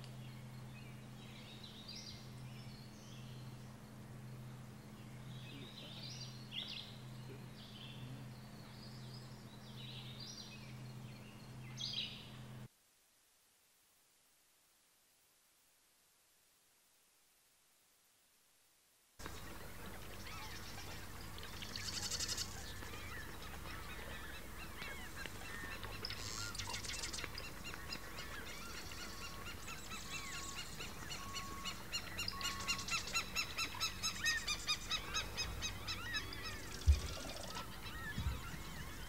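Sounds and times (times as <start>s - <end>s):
swallow twittering chirps: 19.2s - 39.0s.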